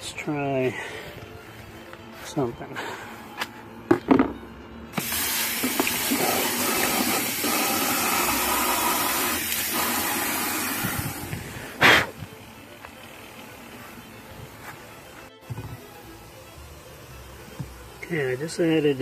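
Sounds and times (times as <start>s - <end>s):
water pouring into tub: 5.0s - 11.3s.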